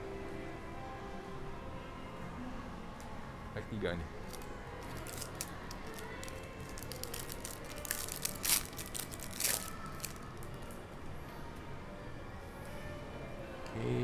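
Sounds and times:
foil wrapper tearing and crackling: 4.3s - 10.2s.

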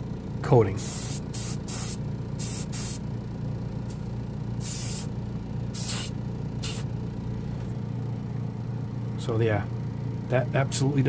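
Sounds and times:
airbrush spraying hissing bursts: 0.8s - 3.0s, 4.6s - 5.1s, 5.7s - 6.9s.

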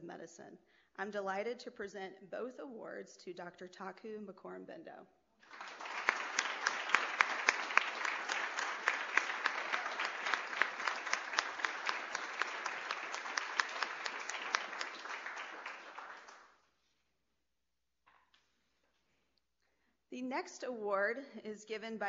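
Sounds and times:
audience applauding: 5.4s - 16.6s.

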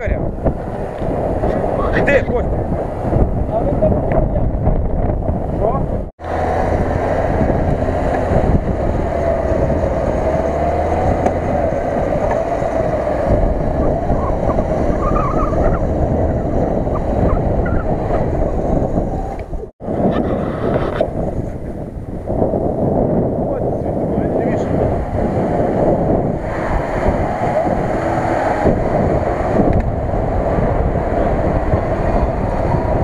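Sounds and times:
wind buffeting microphone: 0.0s - 33.0s
car engine running hard: 6.2s - 19.5s, 23.8s - 33.0s.

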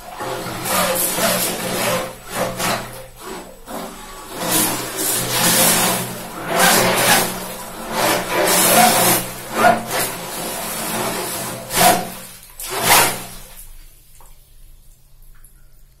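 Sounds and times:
jet churning and spraying water: 0.0s - 13.6s
water jet motor humming: 0.0s - 13.8s
water dripping and trickling: 13.6s - 16.0s.

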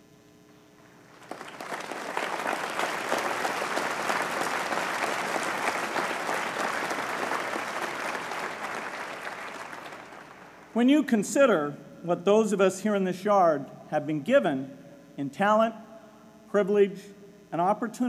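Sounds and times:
large audience applauding: 1.1s - 10.7s.

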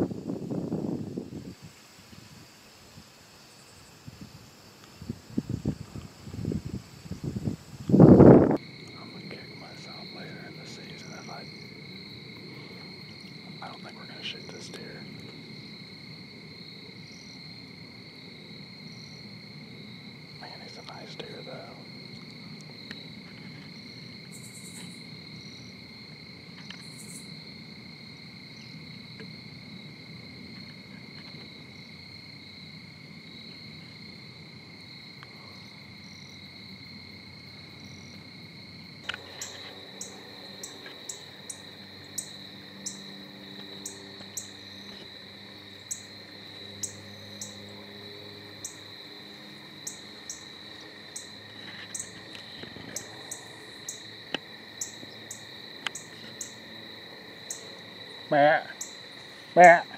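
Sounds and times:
crickets droning: 0.0s - 59.9s
short high insect chirps: 22.8s - 25.7s, 26.6s - 27.4s, 39.1s - 43.1s, 51.1s - 54.1s.

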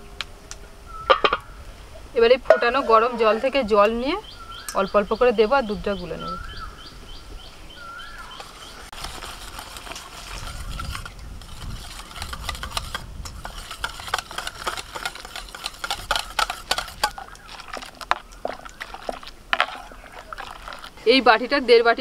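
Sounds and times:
whisk scraping steel bowl: 8.1s - 21.6s
water pouring: 8.9s - 21.5s.

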